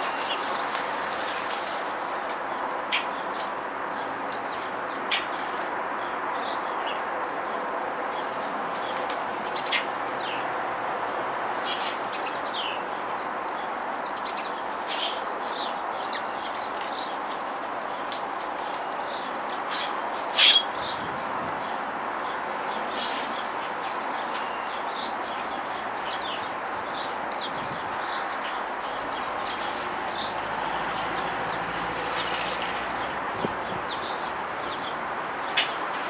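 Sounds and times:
small songbirds chirping: 11.6 - 36.0.

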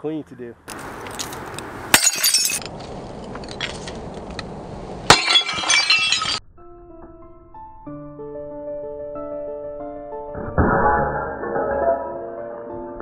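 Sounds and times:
ceramic shards clinking: 2.0 - 2.7, 5.1 - 6.4
sledgehammer smashing ceramic bowl: 5.1 - 6.4
piano music: 6.5 - 13.0.

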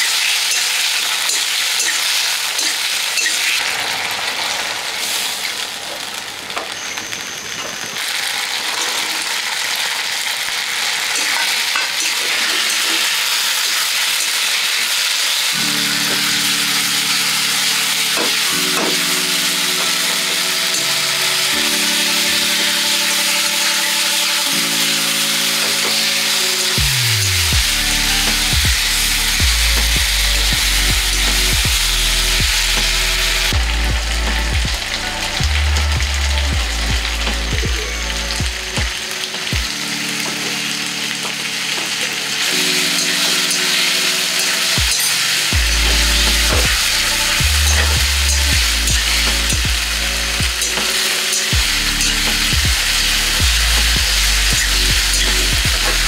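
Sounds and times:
food sizzling in a wok: 0.0 - 56.0
background music chords: 15.5 - 56.0.

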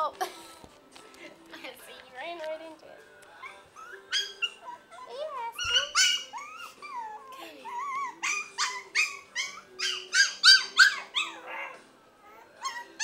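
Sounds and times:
puppy whining and yipping: 3.4 - 13.0.

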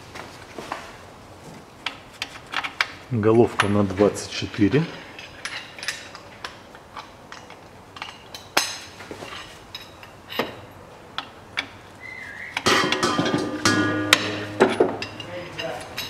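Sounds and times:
socket wrench clinking: 12.6 - 16.0.

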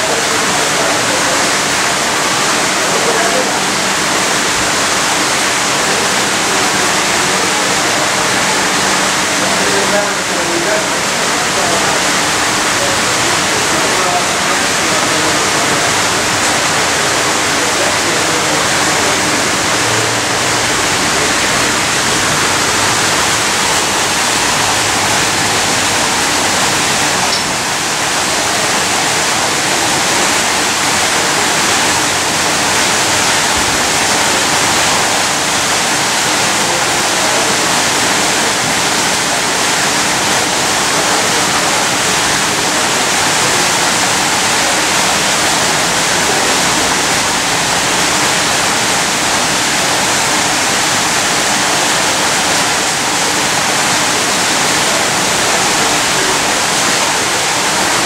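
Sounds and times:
rushing water: 0.0 - 58.0.

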